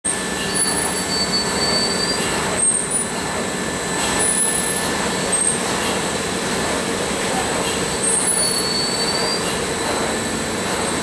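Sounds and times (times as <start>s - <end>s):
high-pitched machine squeals: 0.1s - 3.2s, 4.2s - 5.6s, 7.8s - 9.6s.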